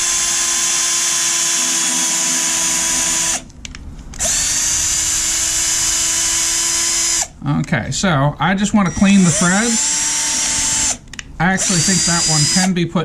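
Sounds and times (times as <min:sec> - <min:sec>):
cordless drill whining: 0:00.0 - 0:03.5, 0:04.2 - 0:07.3, 0:08.8 - 0:11.0, 0:11.6 - 0:12.7.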